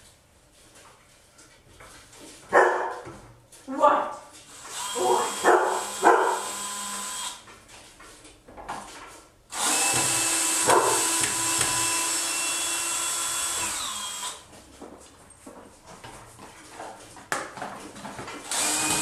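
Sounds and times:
cordless drill whining: 4.5 - 7.4, 9.5 - 14.4, 18.4 - 19.0.

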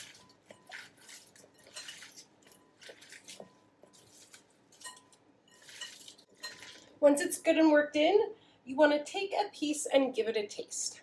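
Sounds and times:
onion slices wet crackling: 0.0 - 7.0.

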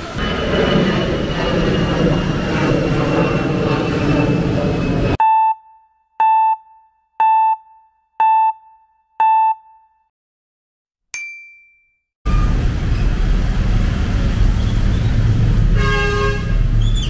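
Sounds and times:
street ambience: 0.0 - 5.2, 12.3 - 17.0
electronic ding: 11.2 - 12.4.

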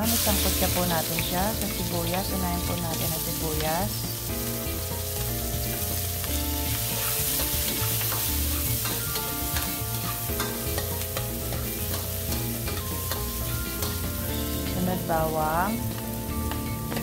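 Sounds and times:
onions sizzling in oil: 0.0 - 17.0
metal spatula scraping pan: 4.1 - 14.8.

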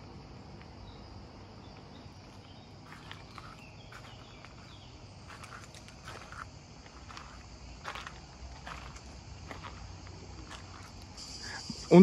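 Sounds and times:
insect chorus chirring: 0.0 - 12.0
footsteps on gravel: 1.6 - 11.2.

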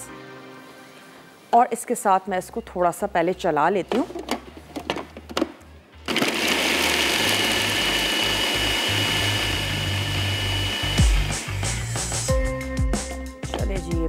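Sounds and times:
electric food chopper whining: 6.1 - 11.8.

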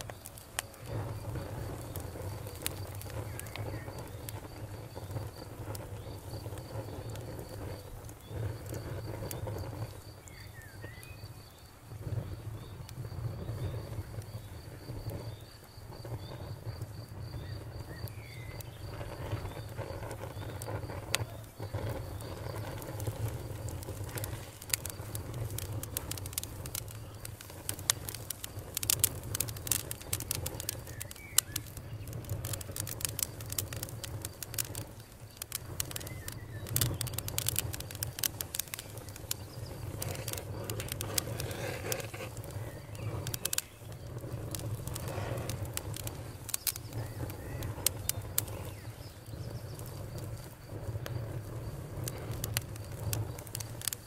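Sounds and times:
campfire crackling and popping: 0.0 - 54.0
faint crickets: 0.0 - 54.0.

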